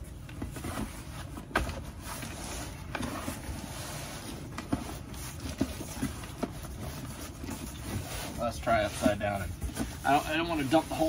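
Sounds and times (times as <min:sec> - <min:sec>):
cardboard rubbing and scraping: 0:00.4 - 0:11.0.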